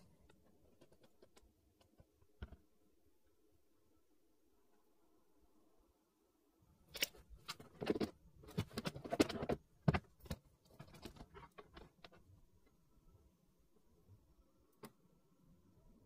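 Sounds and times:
plastic parts clicking and rattling: 0.0 - 2.6, 6.9 - 12.3.

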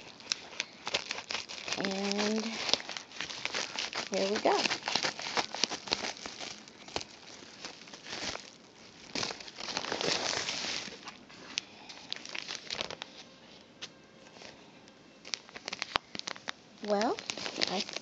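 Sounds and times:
scissors cutting plastic mailer: 0.0 - 8.5, 15.3 - 18.0
plastic packaging crinkling: 0.0 - 13.4, 15.2 - 18.0.

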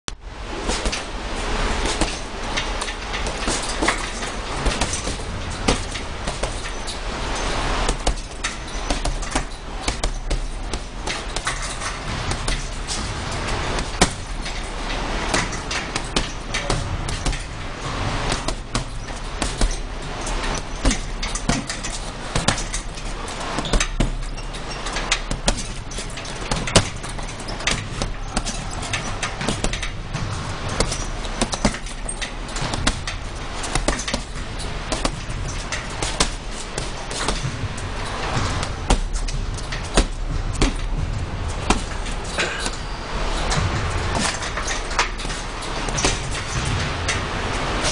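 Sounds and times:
steady low hum: 0.1 - 47.9
boxing gloves thudding heavy bag: 0.6 - 47.9.

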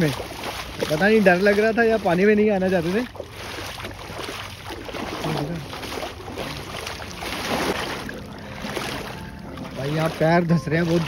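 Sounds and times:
footsteps wading through water: 0.0 - 11.0.

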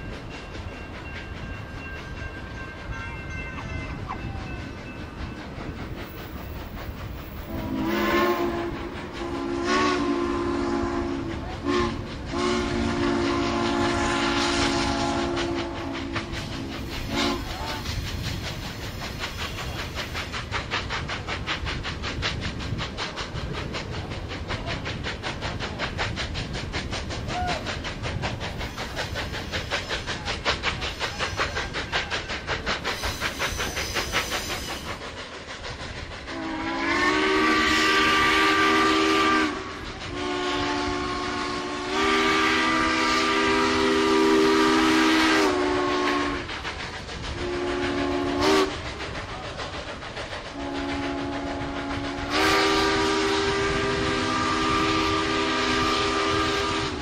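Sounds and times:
steam locomotive exhaust beats: 0.0 - 57.0
steam whistle blasts: 7.4 - 18.0, 36.3 - 46.5, 47.4 - 48.9, 50.5 - 57.0.

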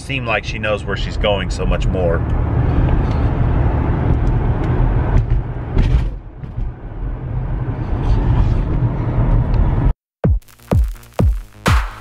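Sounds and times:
road and engine rumble in car: 0.0 - 10.0
electronic dance music: 10.2 - 12.0.

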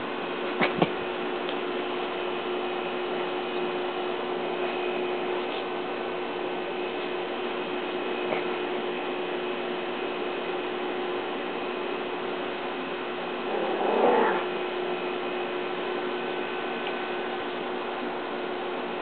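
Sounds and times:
low hum and hiss: 0.0 - 19.0
small dog vocalising: 13.5 - 14.5.

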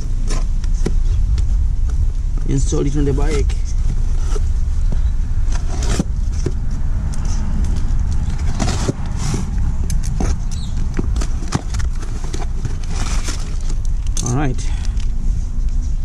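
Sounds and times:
steady low rumble: 0.0 - 16.0
cardboard flaps scraping and clicking: 3.4 - 13.9.

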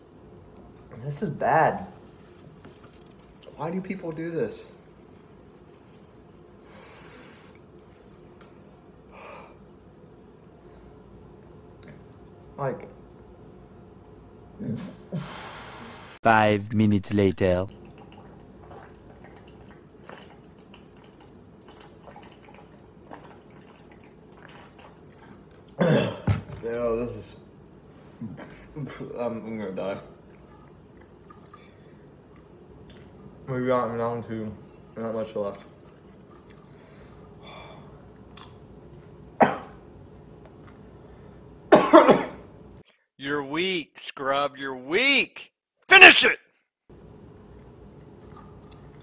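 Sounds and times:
man coughing: 25.8 - 26.3, 39.4 - 39.8, 41.7 - 42.4.

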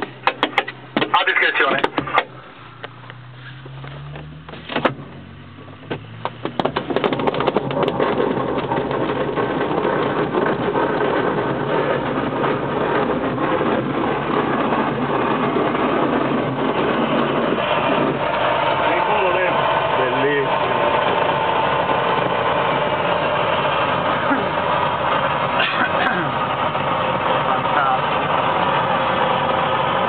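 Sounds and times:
steady rushing air noise: 7.7 - 30.0.

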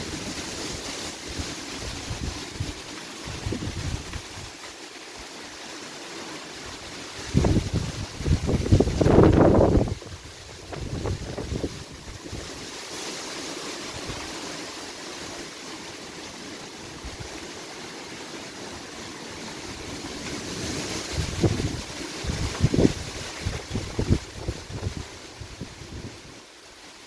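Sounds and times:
gusty wind buffeting microphone: 0.0 - 4.5, 7.1 - 12.6, 19.7 - 26.4.

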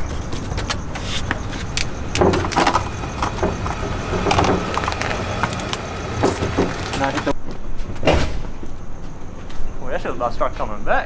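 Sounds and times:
steady low hum: 0.0 - 7.4.

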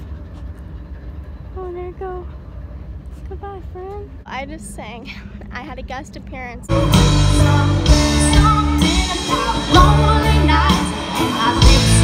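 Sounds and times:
live band playing: 6.7 - 12.0
person singing: 6.7 - 12.0.

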